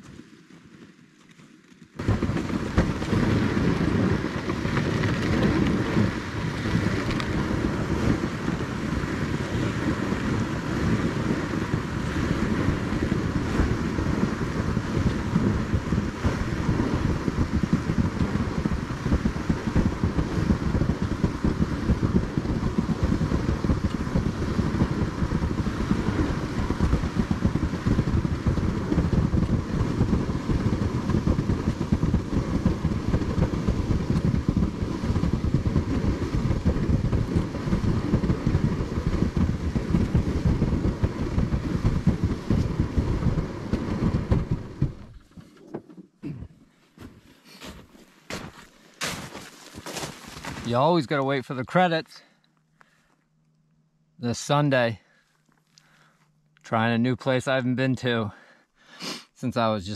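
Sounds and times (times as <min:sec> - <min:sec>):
wind buffeting microphone: 0:02.0 - 0:45.4.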